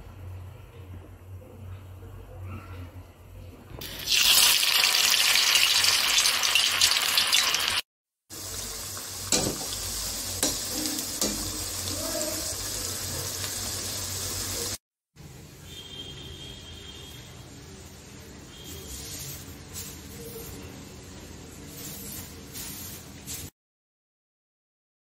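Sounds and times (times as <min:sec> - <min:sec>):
food sizzling in hot oil: 0:03.8 - 0:14.8, 0:18.6 - 0:23.5.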